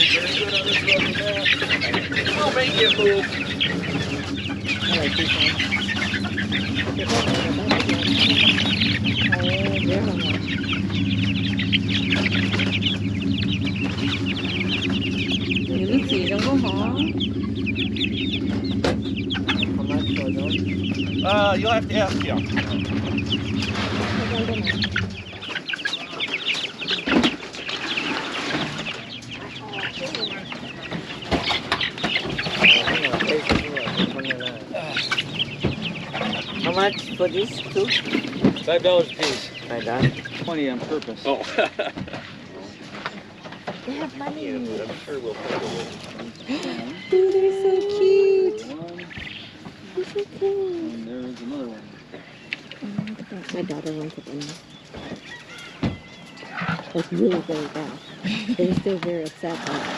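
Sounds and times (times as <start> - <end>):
chickens chirping and clucking: 0.0 - 59.9
steady low hum: 0.0 - 59.9
low thump: 17.2 - 25.4.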